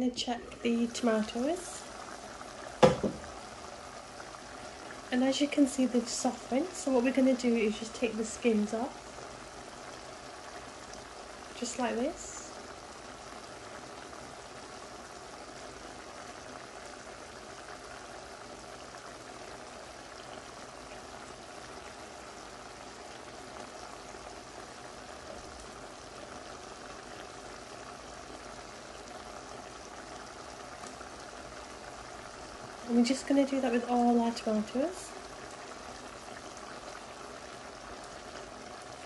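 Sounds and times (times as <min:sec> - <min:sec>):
stew bubbling in a pan: 0:00.0 - 0:39.0.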